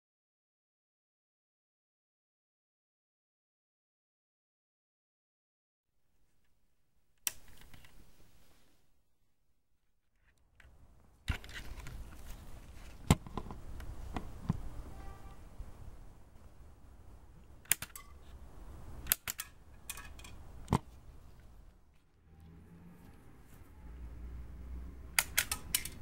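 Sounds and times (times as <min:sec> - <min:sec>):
steady background noise: 0:10.5 - 0:26.0
toy gun clicks and snaps: 0:17.6 - 0:18.2, 0:19.0 - 0:20.8, 0:25.2 - 0:26.0.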